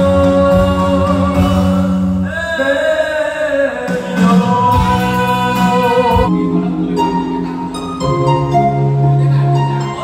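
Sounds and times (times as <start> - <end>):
man singing karaoke: 0.0 - 7.2
backing music over loudspeakers: 0.0 - 10.0.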